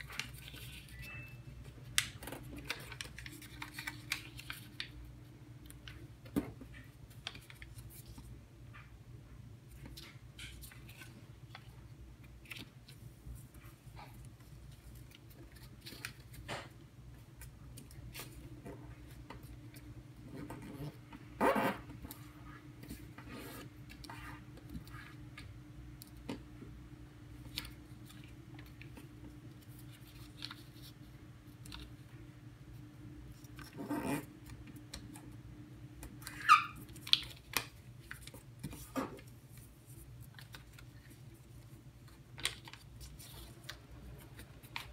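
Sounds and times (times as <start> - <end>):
paper being folded and creased: 0.0 - 1.1, 1.9 - 5.0, 6.8 - 8.8, 9.7 - 16.8, 27.4 - 32.1, 36.2 - 44.9
faint steady hum: 0.0 - 44.9.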